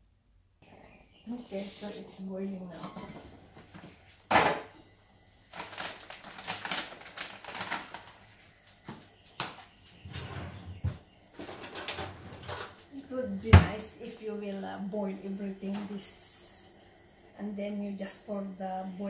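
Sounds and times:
plastic bag crinkling: 5.5 - 8.4.

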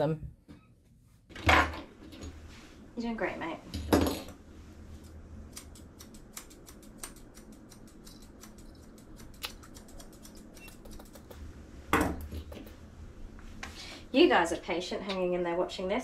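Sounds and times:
scissors snipping hair: 5.0 - 11.4.

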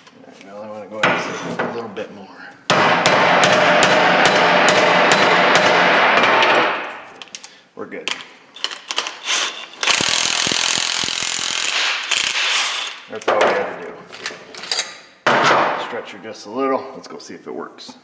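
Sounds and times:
cordless impact wrench running: 9.8 - 13.0.

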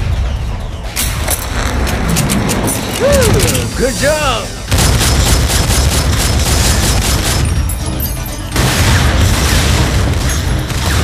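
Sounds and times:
film music score: 0.0 - 11.0
pistol gunfire: 4.7 - 7.6.

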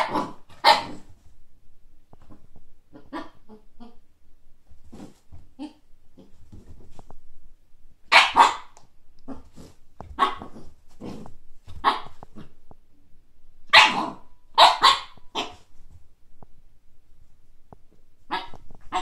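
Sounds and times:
puppy barking: 0.0 - 1.0, 8.1 - 9.4, 10.2 - 10.6, 11.8 - 12.2, 13.7 - 15.7, 18.3 - 19.0.

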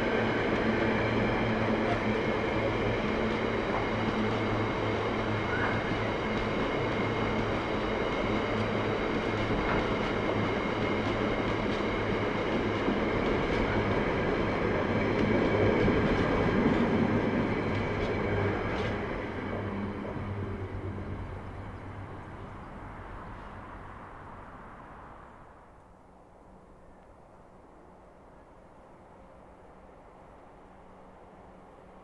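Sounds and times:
train wagons rolling on rails: 0.0 - 25.0.

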